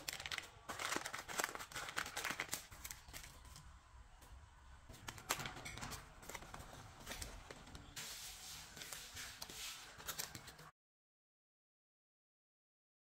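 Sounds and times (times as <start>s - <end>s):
paper clicking on plastic board: 0.0s - 3.6s
baking paper crinkling: 0.0s - 3.8s, 4.9s - 10.7s.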